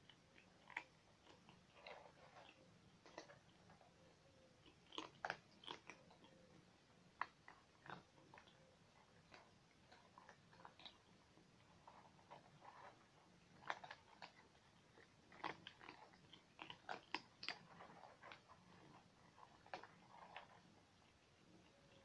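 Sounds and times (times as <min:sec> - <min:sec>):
cats chewing food: 0:00.0 - 0:22.0.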